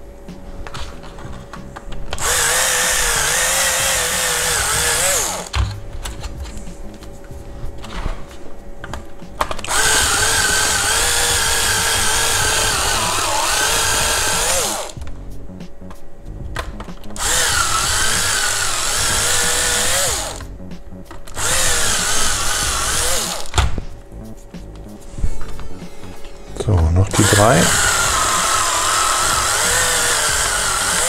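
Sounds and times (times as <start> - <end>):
electric drill whining: 2.1 - 5.5, 9.6 - 15.0, 17.2 - 20.5, 21.3 - 23.6, 27.2 - 31.0.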